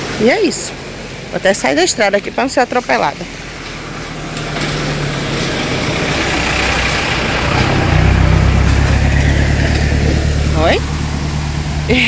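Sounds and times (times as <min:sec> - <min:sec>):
truck engine passing: 0:00.0 - 0:12.0
tyre noise on dirt road: 0:02.9 - 0:12.0.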